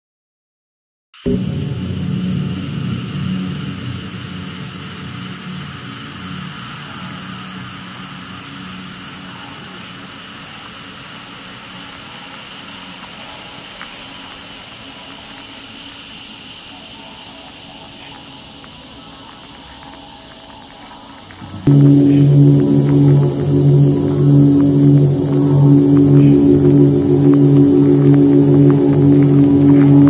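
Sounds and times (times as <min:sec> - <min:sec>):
steady rushing noise: 0:01.3 - 0:13.5, 0:21.4 - 0:30.0
faint even high tone: 0:21.4 - 0:30.0.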